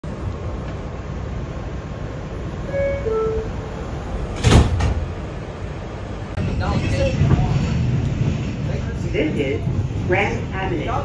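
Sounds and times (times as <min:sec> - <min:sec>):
subway car rumble: 0:00.0 - 0:11.0
two-note falling door chime: 0:02.7 - 0:03.6
sliding doors closing thump: 0:04.2 - 0:05.2.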